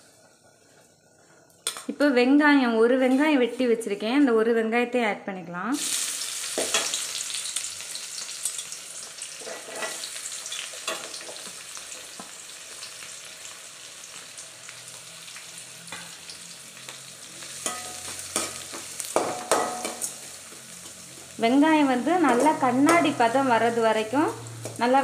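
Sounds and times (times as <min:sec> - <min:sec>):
onion sizzling in oil: 0:05.7 - 0:25.0
metal spatula scraping and clinking: 0:09.4 - 0:11.3, 0:17.6 - 0:20.1.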